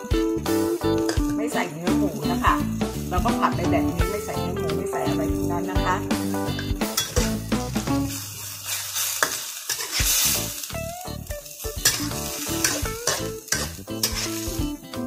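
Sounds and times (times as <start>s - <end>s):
food sizzling: 0.0s - 15.0s
spatula scraping a wok: 6.2s - 10.8s, 11.5s - 14.7s.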